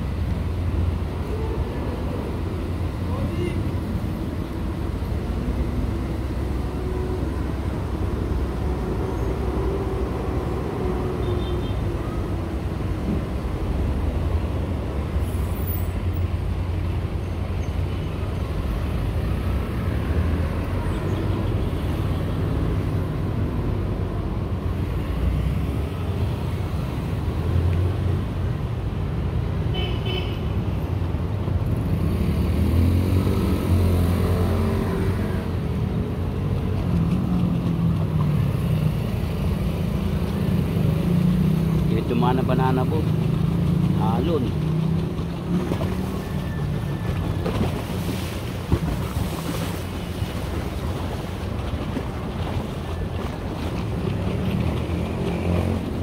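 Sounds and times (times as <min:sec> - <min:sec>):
road traffic rumble: 0:00.0 - 0:56.0
vehicle engine: 0:31.6 - 0:56.0.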